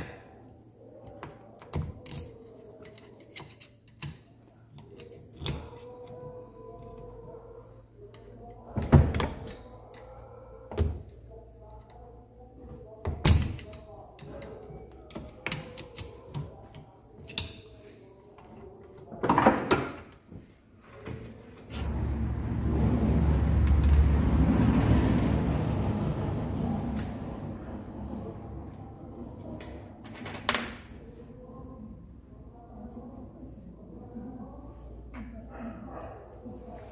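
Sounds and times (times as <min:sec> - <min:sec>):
low rumbling noise: 0:21.7 - 0:29.5.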